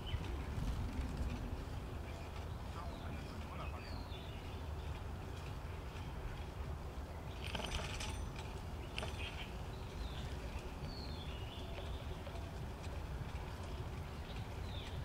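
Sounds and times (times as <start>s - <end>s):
bicycle riding rumble: 0.0s - 15.0s
high chirps and jingling: 7.3s - 10.2s.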